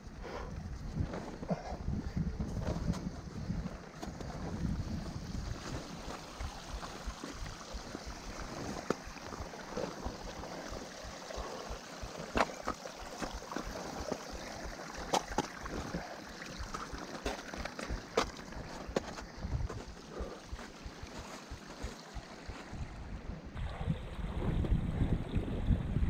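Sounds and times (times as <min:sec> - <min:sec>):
wind buffeting microphone: 0:00.0 - 0:14.8, 0:17.9 - 0:26.0
knocks and scrapes against rock: 0:12.3 - 0:13.7.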